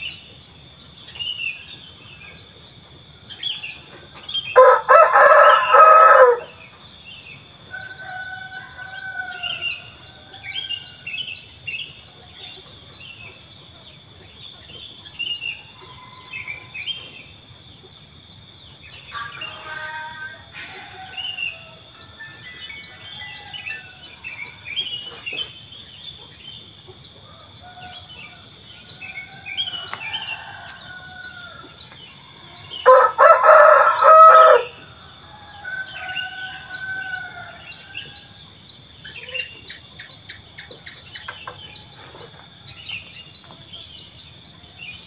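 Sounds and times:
insects chorus: 0:00.0 - 0:45.0
rooster crowing: 0:04.6 - 0:06.6, 0:07.7 - 0:11.0, 0:19.6 - 0:24.6, 0:27.2 - 0:38.4.

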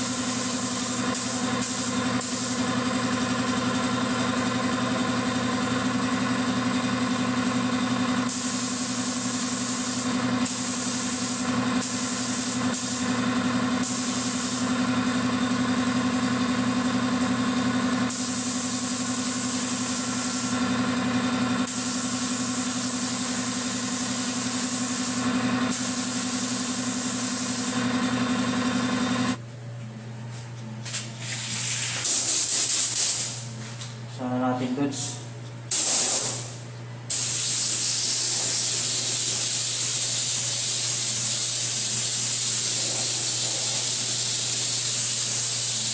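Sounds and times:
paint spray gun hissing: 0:00.0 - 0:03.5, 0:08.2 - 0:14.9, 0:17.9 - 0:28.0, 0:31.5 - 0:33.5, 0:35.7 - 0:45.9
air compressor humming: 0:00.0 - 0:45.9.

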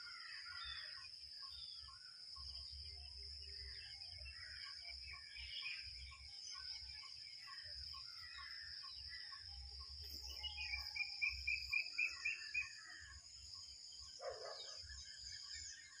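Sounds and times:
birds calling: 0:04.3 - 0:13.2.

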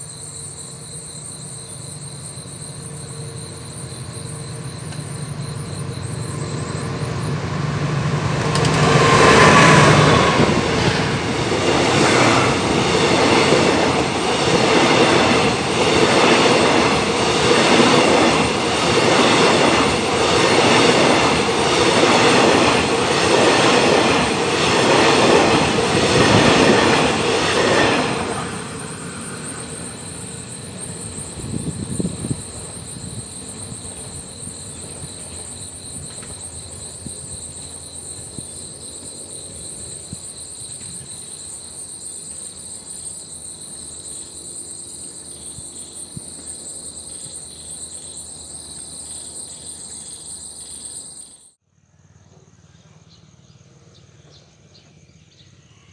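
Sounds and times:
insect trill: 0:00.0 - 0:55.9
locomotive engine drone: 0:00.7 - 0:41.0
train wheels clickety-clack: 0:03.6 - 0:43.2.

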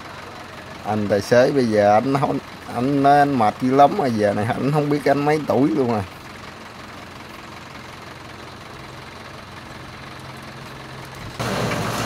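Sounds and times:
heavy engine idling: 0:00.0 - 0:12.0.

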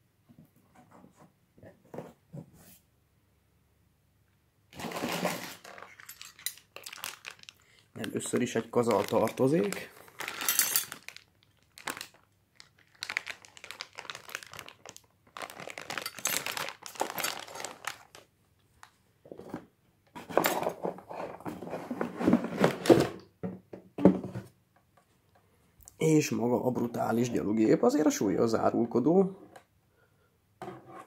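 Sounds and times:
plastic bags crinkling: 0:04.8 - 0:19.0.

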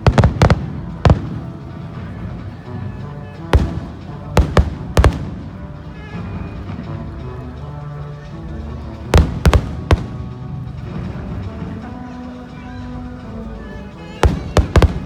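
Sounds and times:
fireworks bursting in bangs: 0:00.0 - 0:01.7, 0:03.6 - 0:05.6, 0:09.2 - 0:10.4, 0:14.2 - 0:15.0
music with sustained notes: 0:00.0 - 0:15.0.

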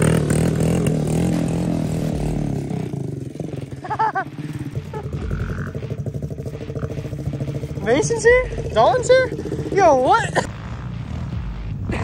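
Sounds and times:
dirt bike engine idling: 0:00.0 - 0:12.0.

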